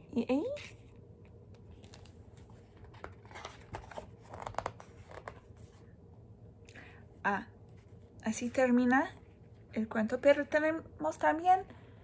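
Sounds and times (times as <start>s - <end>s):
book pages rustling: 0.6s - 5.9s.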